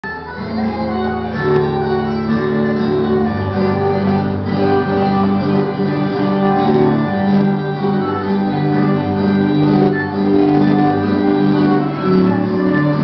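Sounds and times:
instrumental dance music: 0:00.0 - 0:13.0.

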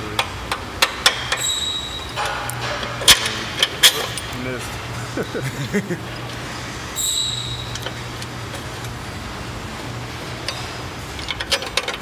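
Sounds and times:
steady low hum: 0:00.0 - 0:12.0
brief high squeak: 0:01.4 - 0:02.2, 0:07.0 - 0:07.8.

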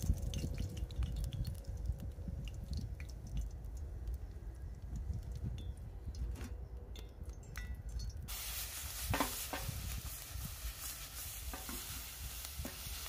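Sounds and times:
peppers sizzling in hot oil: 0:08.3 - 0:13.0.

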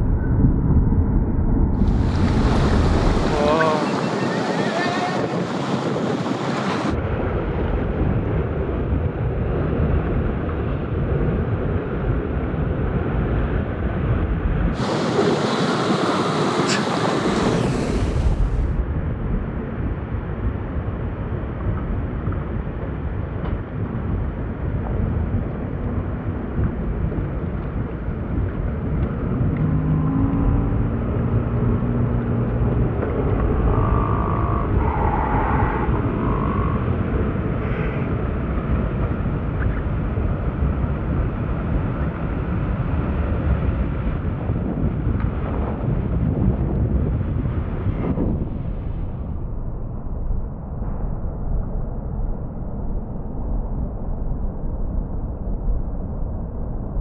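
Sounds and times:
wind rumbling on microphone: 0:00.0 - 0:57.0
ocean surf: 0:01.8 - 0:07.0, 0:13.2 - 0:18.8.

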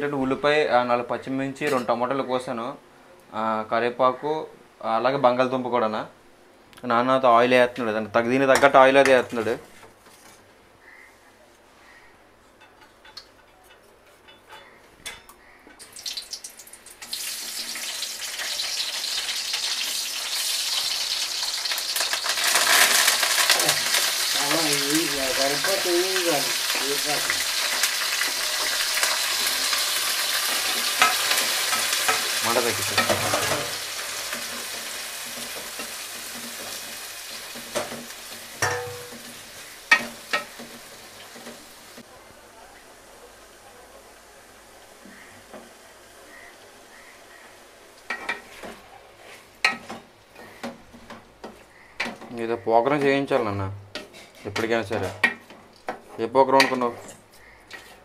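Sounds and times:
oil sizzling in a pan: 0:15.8 - 0:42.1
spoon scraping a pan: 0:25.3 - 0:41.6, 0:48.1 - 0:58.0.

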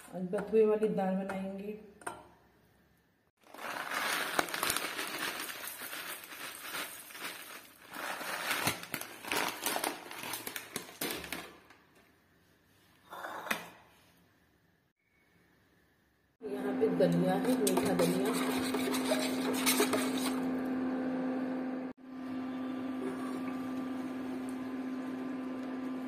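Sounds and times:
crinkling handling noise: 0:03.4 - 0:12.1.

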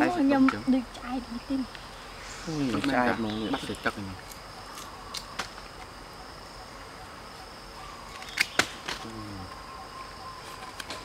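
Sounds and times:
crickets droning: 0:00.0 - 0:11.0.

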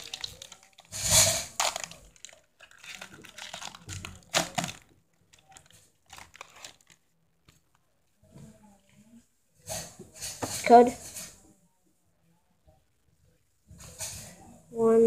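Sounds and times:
foil wrapper crinkling and tearing: 0:00.0 - 0:07.1.

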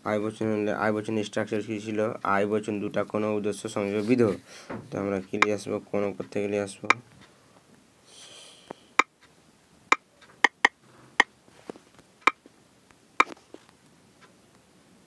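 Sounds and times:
brief hiss: 0:08.0 - 0:08.9.

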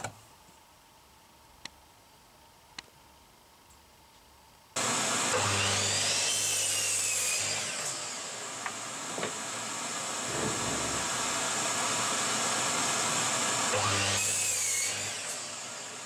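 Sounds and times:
electric mitre saw whining: 0:04.8 - 0:16.0.

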